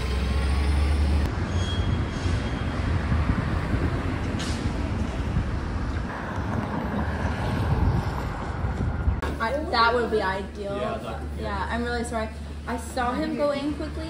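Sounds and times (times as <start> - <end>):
passing traffic: 0.0 - 14.0
wind buffeting microphone: 2.3 - 9.6.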